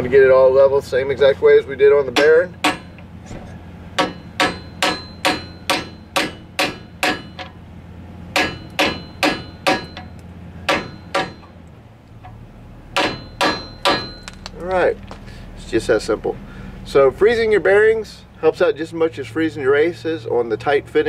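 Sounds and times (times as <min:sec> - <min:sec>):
hammer tapping metal: 0:02.1 - 0:03.1, 0:04.0 - 0:07.6, 0:08.3 - 0:11.6, 0:13.0 - 0:14.5.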